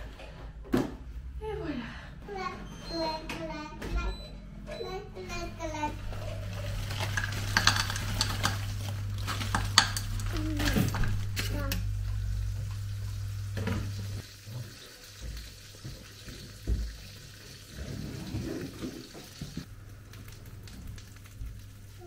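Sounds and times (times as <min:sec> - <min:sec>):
food sizzling in a pan: 0:06.4 - 0:19.7.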